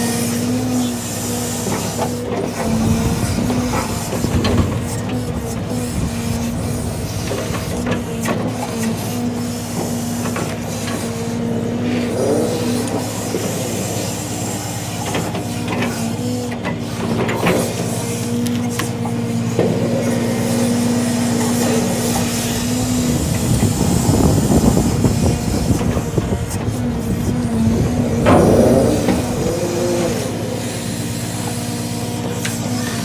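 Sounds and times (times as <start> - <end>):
diesel engine running: 0.0 - 33.0
hydraulic boom whine: 0.0 - 33.0
rough churning: 0.4 - 33.0.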